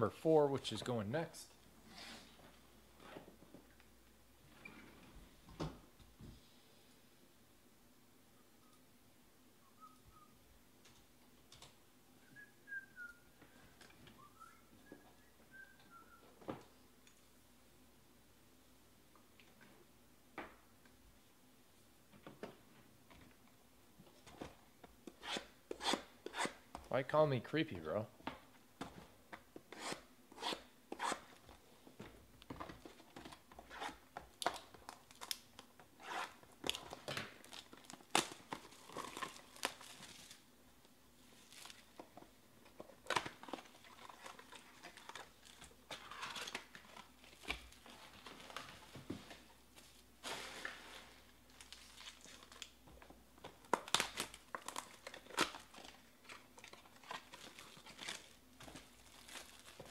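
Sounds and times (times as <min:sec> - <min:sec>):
cardboard and foil tearing: 0:36.7 - 0:40.4, 0:50.2 - 0:52.8, 0:53.7 - 0:59.9.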